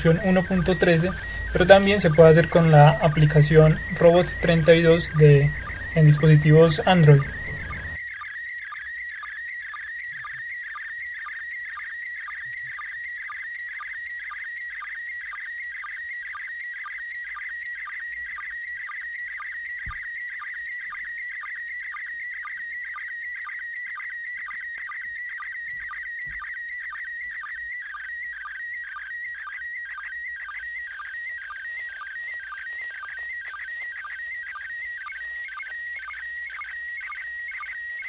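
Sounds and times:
short lower sync blips: 0.0 - 14.6
high warbling radio whistle: 0.0 - 38.0.

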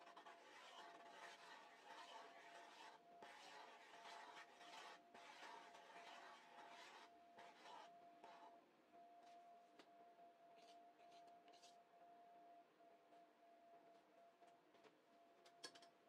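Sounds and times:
chopsticks scraping through batter: 0.0 - 8.4.

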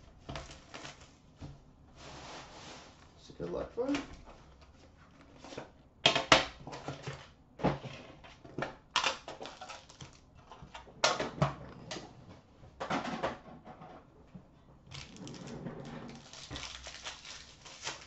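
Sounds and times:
wrapping tearing: 9.0 - 10.2, 14.9 - 18.0.

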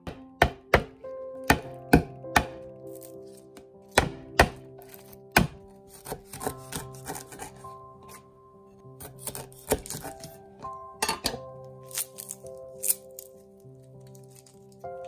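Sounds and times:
knife chopping on wooden board: 0.0 - 3.1, 3.9 - 8.2, 9.0 - 10.4
music with long held tones: 0.0 - 15.0.

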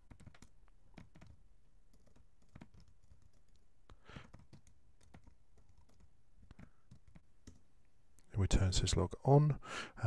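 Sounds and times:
keyboard typing: 0.0 - 7.6.

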